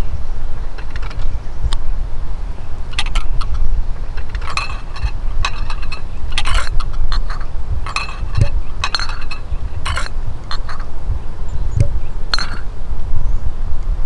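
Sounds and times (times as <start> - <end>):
china teacups clinking: 2.9 - 3.6, 4.2 - 10.9, 11.8 - 12.7.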